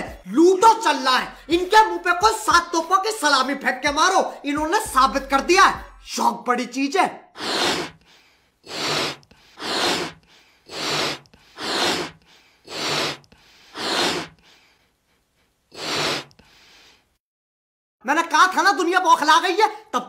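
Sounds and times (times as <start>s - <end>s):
man breathing rhythmically: 1.3s - 1.6s, 7.4s - 17.2s.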